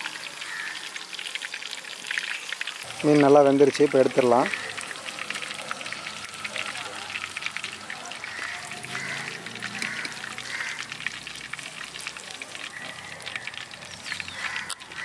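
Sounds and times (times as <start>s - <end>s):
fish deep-frying in oil: 0.0s - 15.0s.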